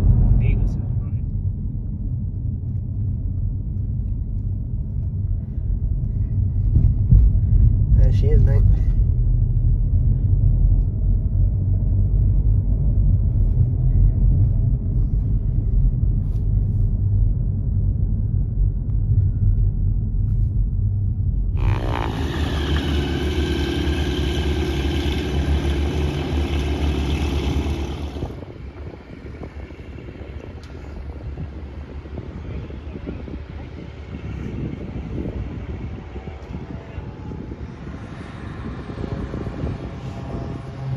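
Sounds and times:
outdoor noise: 0.0 - 40.9
car driving from inside cabin: 18.9 - 40.9.

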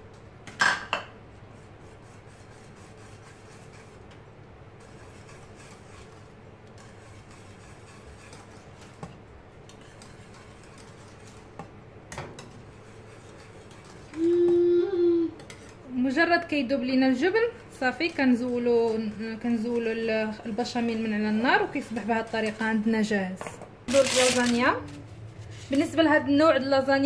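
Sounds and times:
whisk rubbing in sauce: 1.3 - 11.7, 12.4 - 23.2.

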